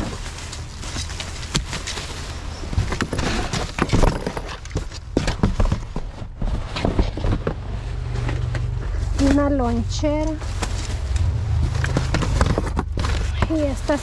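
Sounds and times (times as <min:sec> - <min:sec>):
clothes hangers clacking and rustling: 0:06.6 - 0:14.0.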